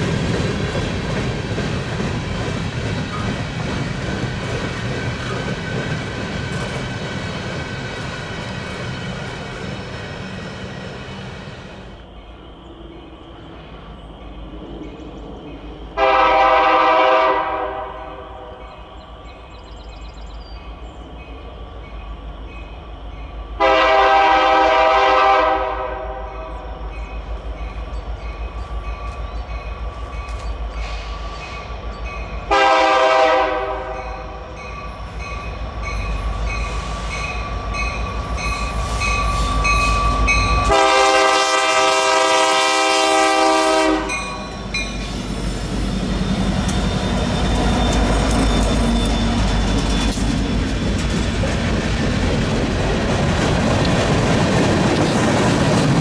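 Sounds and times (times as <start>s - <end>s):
train rumble: 0.0s - 56.0s
locomotive air horn blasts: 16.0s - 18.6s, 23.6s - 26.5s, 32.5s - 34.4s, 39.0s - 44.5s.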